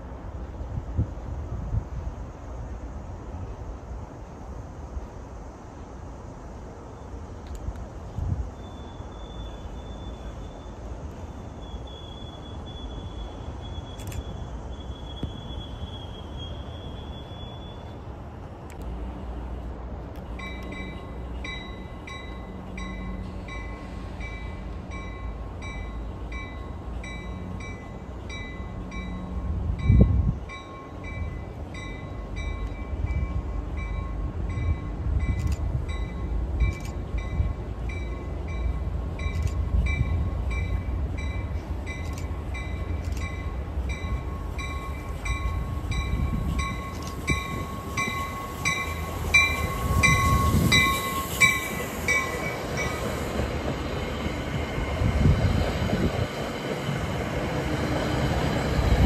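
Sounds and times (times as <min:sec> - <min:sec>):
train rumble: 0:00.0 - 0:59.0
train bell ringing: 0:20.4 - 0:55.3.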